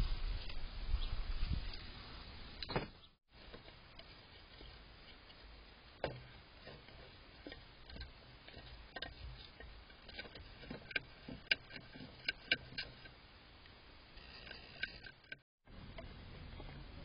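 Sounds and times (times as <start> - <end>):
animal gnawing wooden feeder: 3.4 - 13.2.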